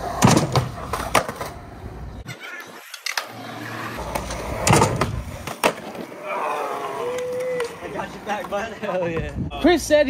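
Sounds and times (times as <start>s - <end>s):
skateboard popping and landing: 0.0s - 6.2s
skateboard wheels rolling on concrete: 0.0s - 10.0s.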